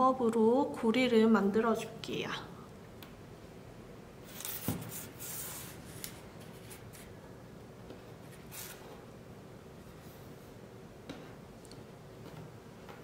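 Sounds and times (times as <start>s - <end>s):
rope rustling and rubbing on table: 4.2s - 7.2s.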